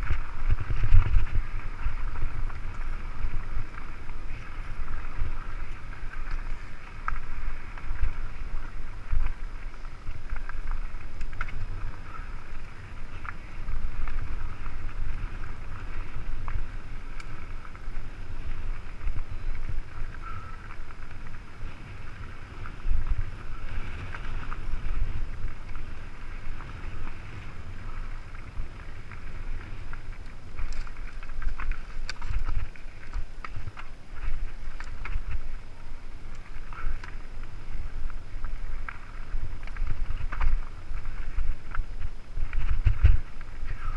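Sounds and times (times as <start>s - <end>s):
bike tyres rattling on stony ground: 0.0s - 43.9s
wind rumble on microphone: 0.0s - 43.9s.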